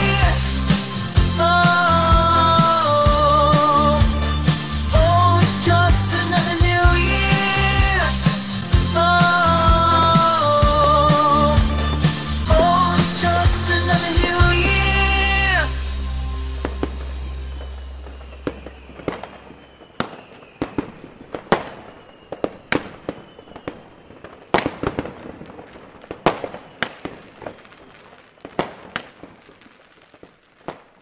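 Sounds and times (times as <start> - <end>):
song music: 0.0 - 20.1
fireworks bangs and crackling: 0.0 - 31.0.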